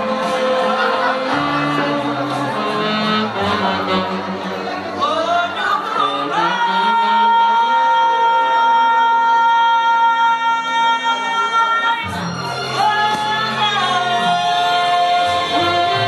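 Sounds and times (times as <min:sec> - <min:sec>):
bass line: 0:00.0 - 0:09.2
woman singing into a microphone: 0:05.0 - 0:12.2, 0:12.8 - 0:16.0.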